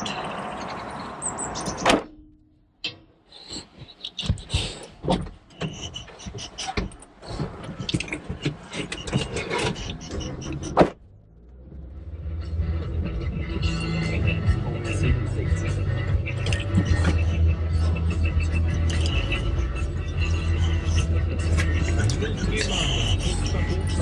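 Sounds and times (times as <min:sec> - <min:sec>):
outdoor noise: 0:00.0 - 0:24.0
knocks and rustling inside car: 0:03.8 - 0:11.0.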